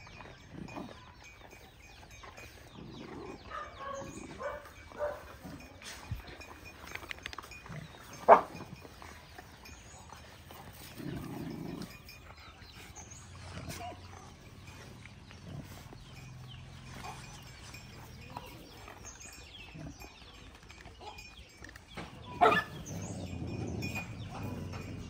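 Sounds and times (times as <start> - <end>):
dogs growling: 0.0 - 25.0
dog yelping: 22.4 - 22.9.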